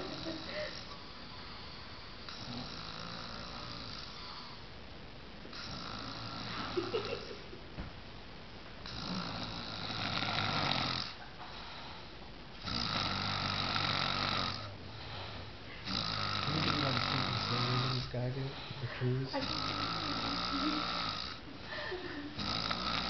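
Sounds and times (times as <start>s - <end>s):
man snoring: 0.0s - 4.6s, 5.5s - 7.1s, 8.8s - 11.2s, 12.6s - 21.5s, 22.3s - 23.0s.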